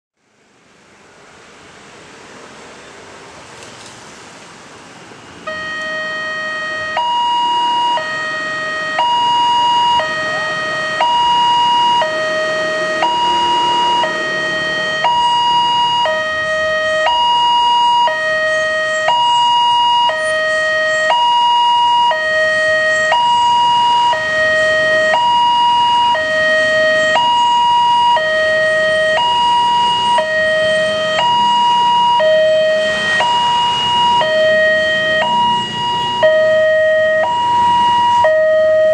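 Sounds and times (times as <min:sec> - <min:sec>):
two-tone crossing alarm: 0:05.4 - 0:38.9.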